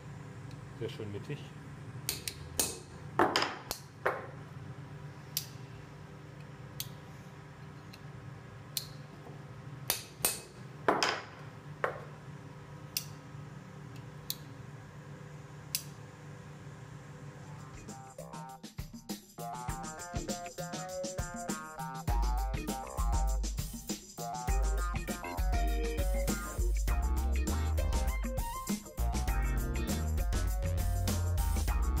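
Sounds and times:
low workshop hum: 0:00.0 - 0:18.0.

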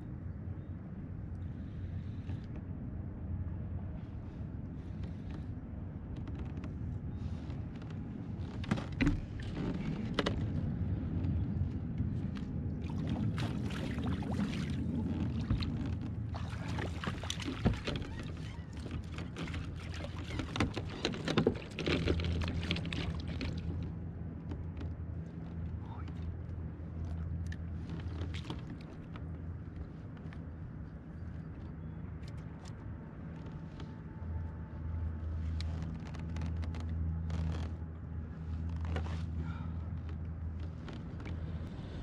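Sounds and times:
steady low hum: 0:00.0 - 0:42.0
water splashing and sloshing: 0:08.3 - 0:31.4.

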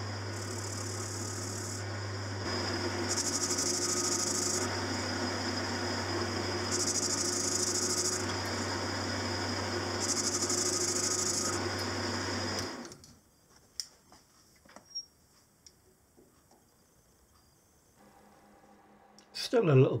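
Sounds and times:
high hiss: 0:00.0 - 0:13.0
lathe motor humming: 0:00.0 - 0:13.0.

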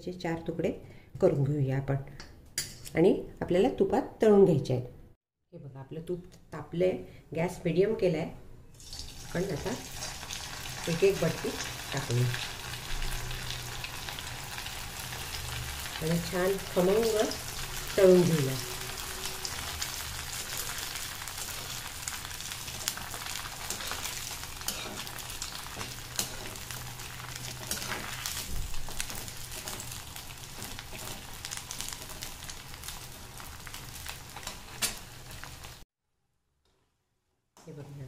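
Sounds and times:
dough deep-frying in oil: 0:08.7 - 0:35.8.

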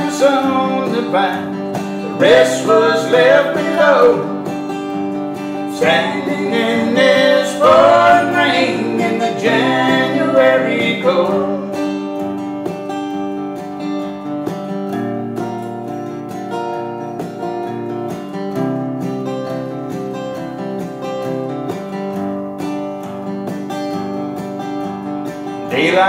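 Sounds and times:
acoustic guitar strumming: 0:00.0 - 0:26.0.

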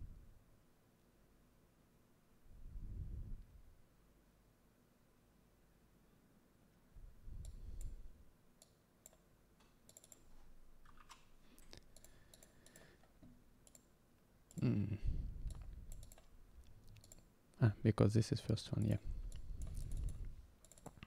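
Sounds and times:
computer mouse clicks: 0:07.4 - 0:13.9, 0:15.4 - 0:17.3, 0:18.8 - 0:21.0.

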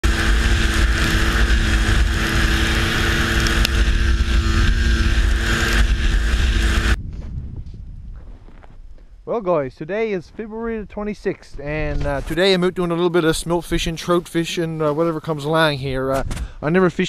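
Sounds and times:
snowmobile engine running: 0:00.0 - 0:07.0
wind buffeting microphone: 0:00.1 - 0:09.2.

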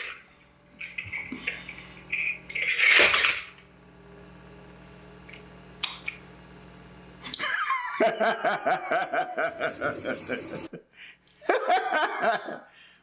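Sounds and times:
low hum: 0:00.0 - 0:11.1
man chuckling: 0:07.3 - 0:12.8.

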